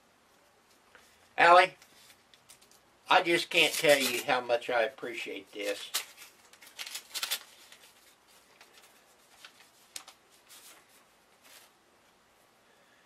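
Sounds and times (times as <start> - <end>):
paper rustling: 1.8 - 4.5, 5.4 - 11.8.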